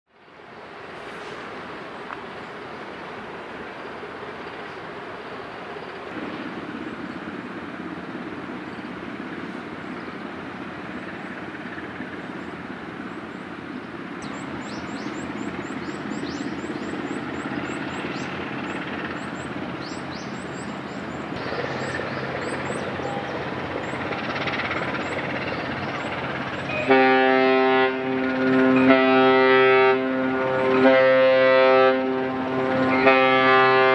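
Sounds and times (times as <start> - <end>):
deep ship horn blast: 26.7 - 33.9.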